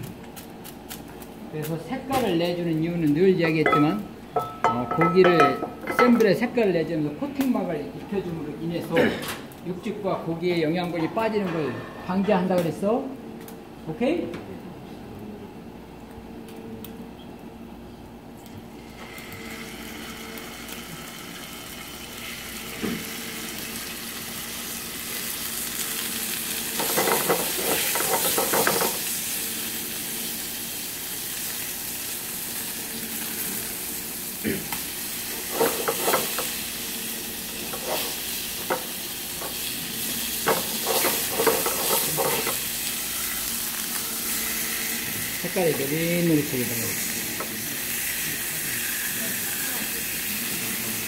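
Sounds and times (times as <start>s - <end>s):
oil frying hiss: 18.8s - 51.0s.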